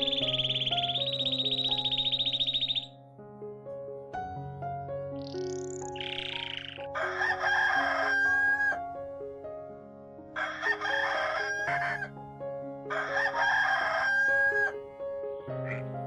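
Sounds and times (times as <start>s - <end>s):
soft background music: 0.0s - 16.0s
rooster crowing: 7.0s - 8.8s, 10.4s - 12.1s, 12.9s - 14.8s.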